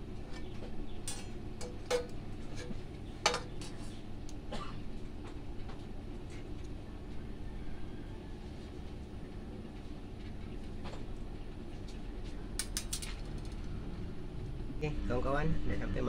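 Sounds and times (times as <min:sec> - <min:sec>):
metal parts clicking and clinking: 0:12.6 - 0:13.7.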